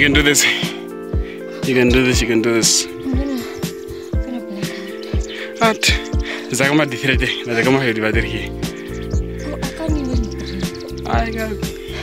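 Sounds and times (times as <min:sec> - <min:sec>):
held synth chords: 0:00.8 - 0:12.0
kick drum beat: 0:03.0 - 0:03.4, 0:04.2 - 0:04.4, 0:05.9 - 0:06.2, 0:09.2 - 0:11.6.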